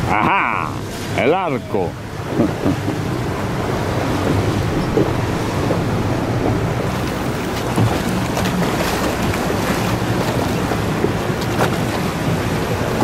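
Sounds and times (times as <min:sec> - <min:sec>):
boat motor droning: 0:00.0 - 0:13.0
water splashing along hull: 0:00.0 - 0:13.0
wind buffeting microphone: 0:02.0 - 0:13.0.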